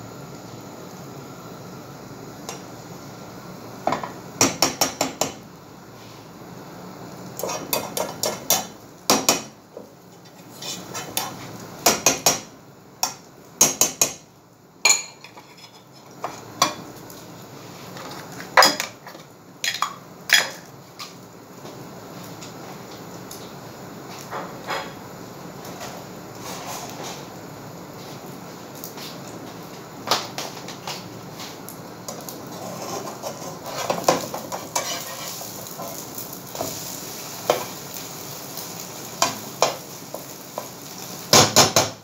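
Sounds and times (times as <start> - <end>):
fork scraping a frying pan: 7.4 - 8.6, 10.2 - 11.5, 32.5 - 36.0.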